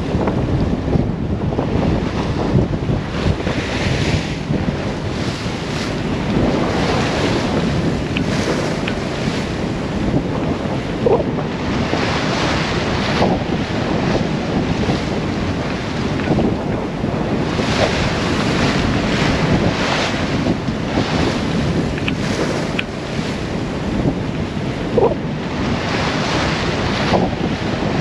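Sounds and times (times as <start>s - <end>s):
waves breaking: 0.0s - 28.0s
wind: 0.0s - 28.0s
wind buffeting microphone: 0.0s - 28.0s.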